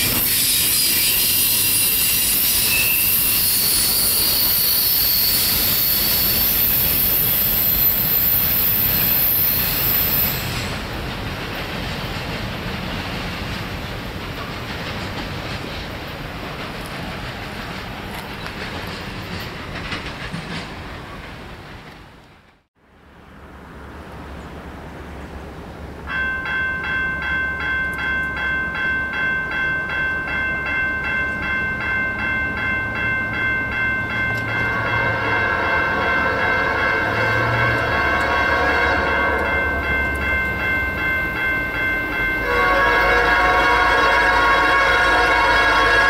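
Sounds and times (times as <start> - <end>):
locomotive air horn: 34.7 - 39.8, 42.4 - 46.0.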